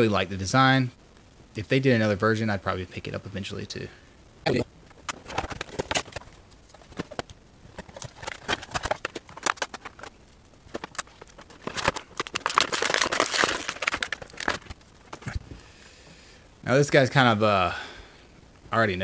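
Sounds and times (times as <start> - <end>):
plastic packaging crinkling: 4.9 - 15.4.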